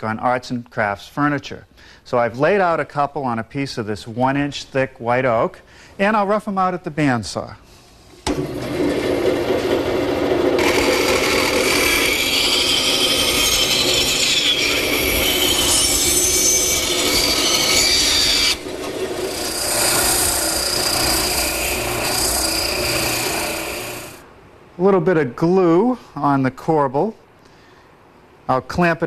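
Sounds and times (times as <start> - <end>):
bandsaw cutting wood: 8.3 - 24.2
spindle sander smoothing wood: 8.5 - 24.2.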